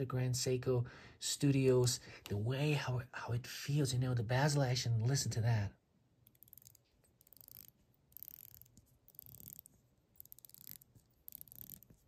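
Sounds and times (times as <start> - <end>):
watch bezel ratchet clicks: 6.2 - 11.9.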